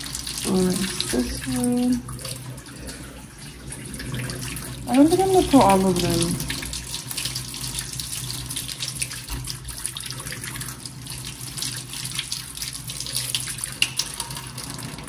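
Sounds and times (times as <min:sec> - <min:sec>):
tap water splashing: 0:04.0 - 0:15.0.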